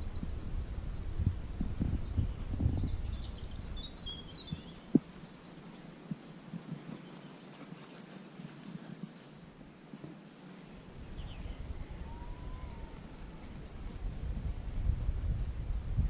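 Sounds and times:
wind buffeting microphone: 0.0s - 5.3s, 10.9s - 16.0s.

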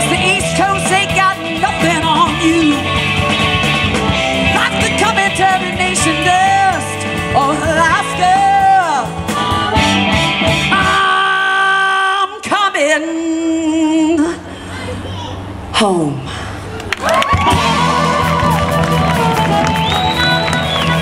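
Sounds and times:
blues band playing: 0.0s - 12.2s, 17.1s - 21.0s.

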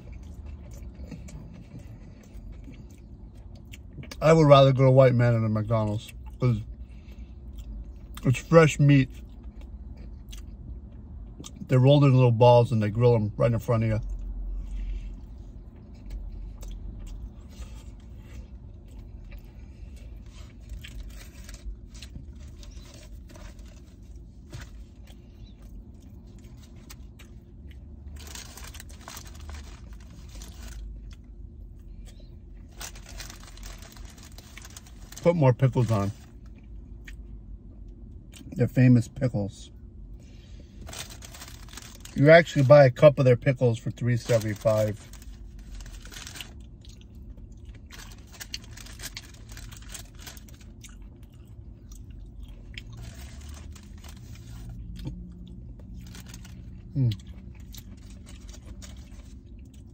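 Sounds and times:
person chewing food: 0.0s - 4.2s, 14.1s - 35.1s, 45.1s - 59.9s
low steady hum: 0.0s - 59.9s
wrapping paper crinkling: 20.3s - 25.0s, 28.1s - 31.0s, 32.6s - 36.4s, 40.8s - 42.7s, 44.2s - 46.6s, 47.9s - 50.8s, 52.9s - 54.8s, 56.0s - 56.8s.

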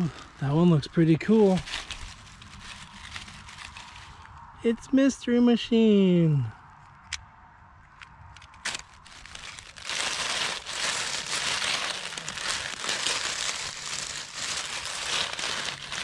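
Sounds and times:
dry leaves crunching: 0.0s - 4.3s, 8.6s - 16.0s.

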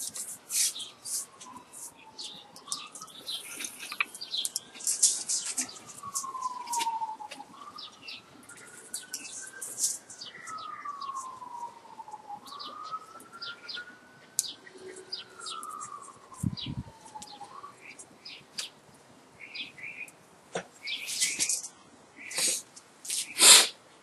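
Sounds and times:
siren wailing: 0.5s - 4.0s, 4.8s - 17.6s.

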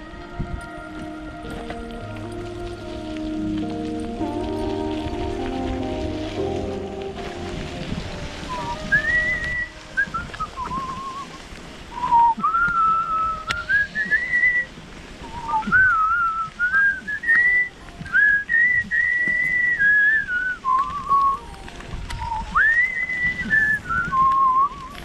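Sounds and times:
person whistling a tune: 8.5s - 11.4s, 12.0s - 21.4s, 22.1s - 25.0s.

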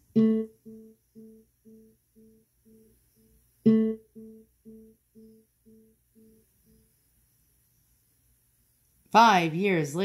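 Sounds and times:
speaker pluck tone: 0.0s - 6.9s.

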